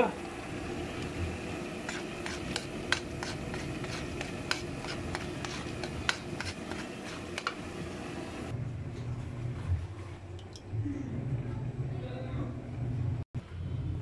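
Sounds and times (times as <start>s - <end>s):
oil sizzling: 0.0s - 8.5s
ladle scraping a wok: 1.7s - 7.9s.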